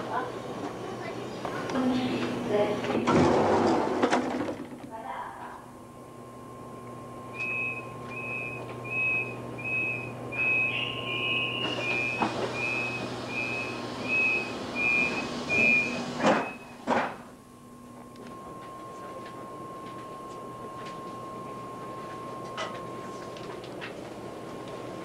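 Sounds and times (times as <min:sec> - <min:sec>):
train door warning beeps: 0:06.6 - 0:16.9, 0:17.7 - 0:23.6
high whistle tone: 0:07.3 - 0:16.7.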